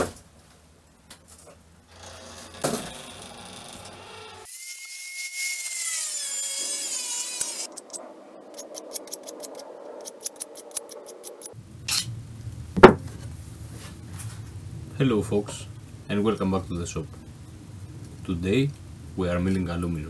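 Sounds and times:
blade scraping aluminium: 1.9s - 4.5s.

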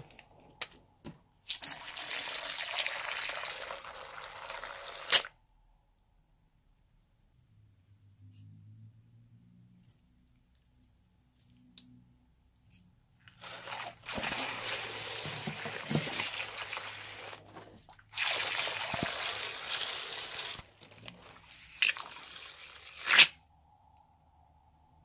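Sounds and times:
liquid squirting from balloon: 1.5s - 5.3s, 13.4s - 23.3s.

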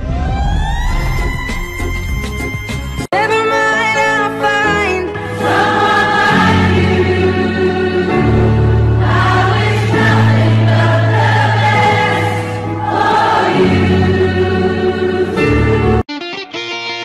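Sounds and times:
choir singing: 5.2s - 16.0s.

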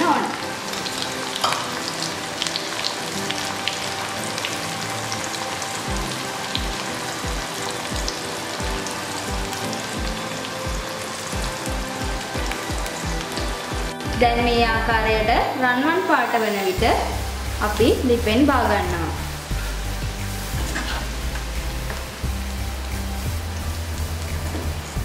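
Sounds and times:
deep-frying sizzle and crackles: 0.0s - 14.2s, 16.2s - 25.0s
music with deep beat: 5.9s - 15.2s, 19.2s - 25.0s.

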